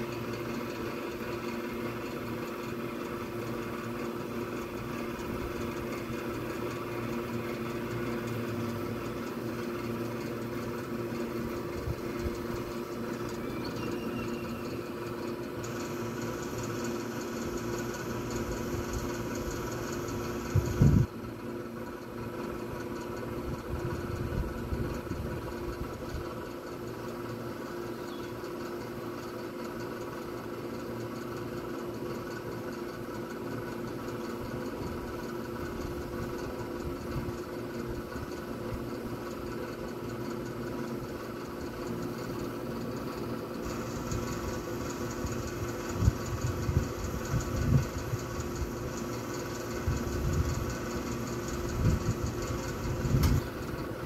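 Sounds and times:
steady machine hum: 0:00.0 - 0:54.0.

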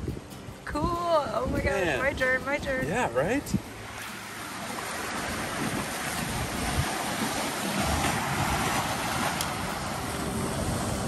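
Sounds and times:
wind on microphone: 0:00.0 - 0:04.0, 0:04.6 - 0:11.0
surf breaking against boulders: 0:04.8 - 0:11.0.

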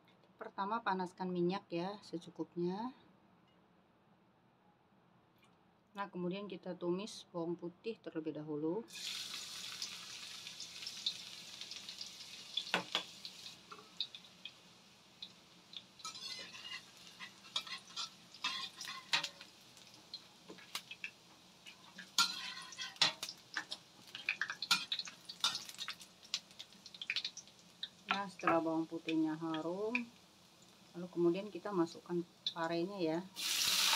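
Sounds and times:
garlic sizzling in hot oil: 0:08.9 - 0:33.9
metal spatula scraping a wok: 0:16.0 - 0:19.4, 0:22.2 - 0:23.3.

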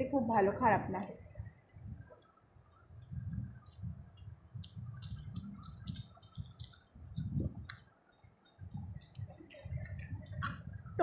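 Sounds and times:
chewing with wet clicks: 0:01.4 - 0:10.9
lip smacks: 0:03.6 - 0:10.6.

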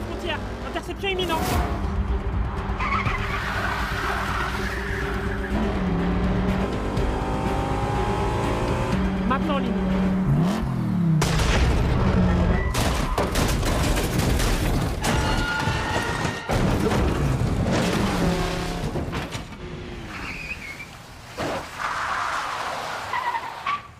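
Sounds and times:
car engines running hard: 0:01.7 - 0:12.6, 0:17.1 - 0:21.2
crunching metal: 0:11.1 - 0:19.8
car crash impacts: 0:11.2 - 0:19.6.

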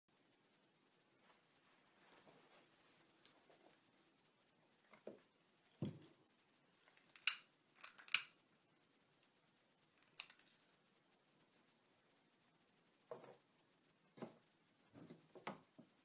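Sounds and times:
sharp clicks: 0:07.0 - 0:08.4.

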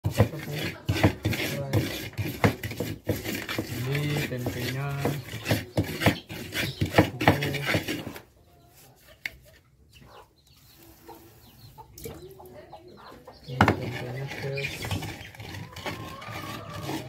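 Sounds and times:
stone pestle grinding in mortar: 0:00.0 - 0:08.2, 0:13.6 - 0:17.0
faint chicken clucking: 0:03.8 - 0:17.0.

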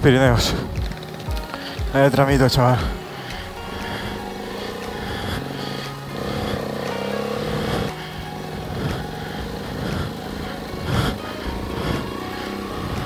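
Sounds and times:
motorcycle engine running: 0:00.0 - 0:13.0
motorcycle knocking on rough ground: 0:00.2 - 0:03.0.

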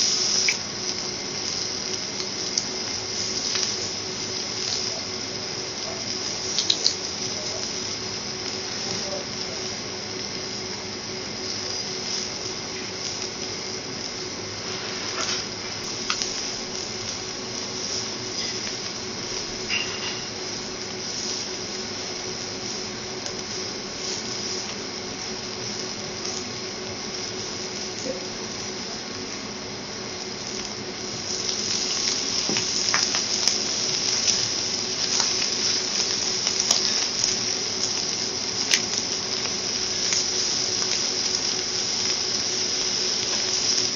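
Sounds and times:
seafood sizzling on a griddle: 0:00.0 - 0:43.9
knife and fork scraping hot plate: 0:19.7 - 0:20.3.

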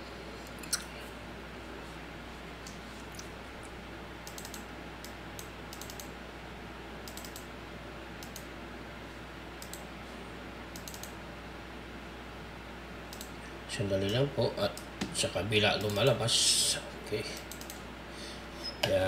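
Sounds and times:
steady low hum: 0:00.0 - 0:19.0
computer mouse clicks: 0:04.2 - 0:06.1, 0:07.0 - 0:07.5, 0:08.2 - 0:08.5, 0:09.6 - 0:09.9, 0:10.7 - 0:11.2, 0:13.1 - 0:13.3, 0:17.4 - 0:17.8.

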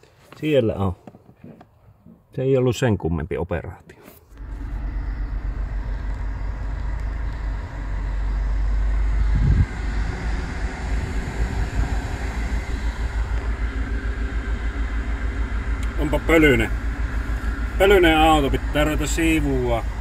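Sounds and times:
blower fan air rushing: 0:04.4 - 0:20.0
low pulsing rumble: 0:04.4 - 0:20.0.

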